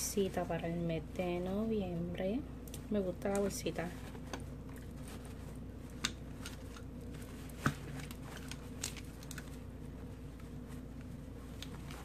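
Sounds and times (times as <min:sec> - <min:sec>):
steady background hum: 0:00.0 - 0:12.0
fabric rustling: 0:03.6 - 0:12.0.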